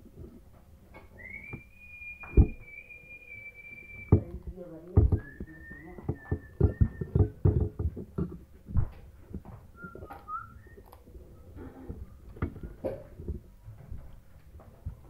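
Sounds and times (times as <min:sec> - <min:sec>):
thin whistle-like tone: 0:01.2 - 0:04.3, 0:05.1 - 0:07.3, 0:09.8 - 0:10.9.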